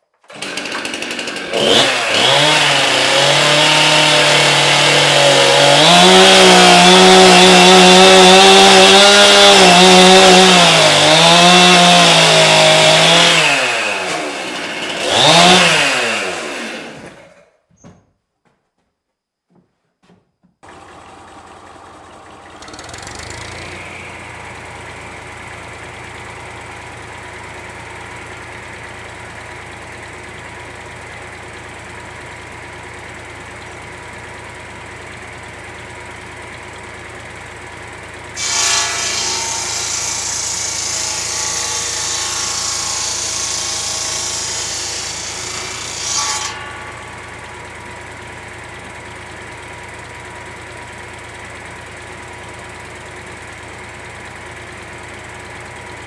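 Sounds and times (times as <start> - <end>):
tractor engine running: 0.1 - 17.3, 20.6 - 38.4, 46.6 - 56.0
saw cutting wooden plank: 0.2 - 17.5, 22.5 - 32.0, 37.2 - 50.6
circular saw blade spinning: 22.4 - 28.1, 38.3 - 49.2.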